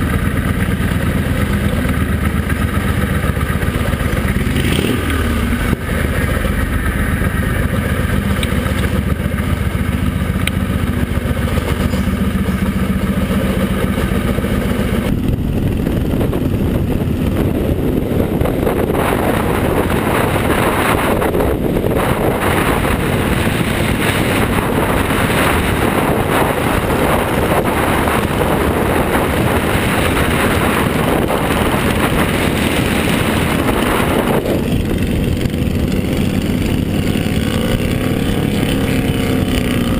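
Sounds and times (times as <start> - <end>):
motorcycle engine running: 0.0 - 39.9
wind and road noise: 0.0 - 39.9.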